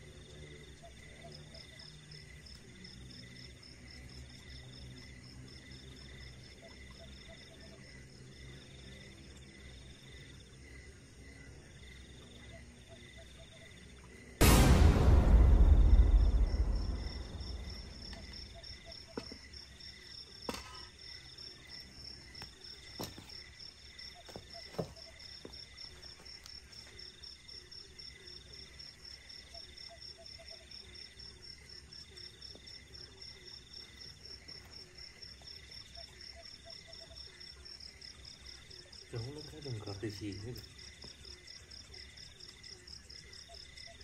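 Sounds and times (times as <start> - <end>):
crickets and insects chirping: 0.0 - 44.0
loud deep boom: 14.4 - 18.8.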